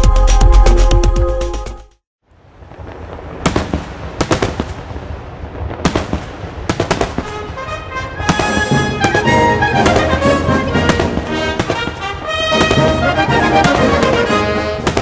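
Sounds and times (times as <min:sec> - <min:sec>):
fireworks crackling: 0:02.3 - 0:15.0
fireworks bangs: 0:02.6 - 0:15.0.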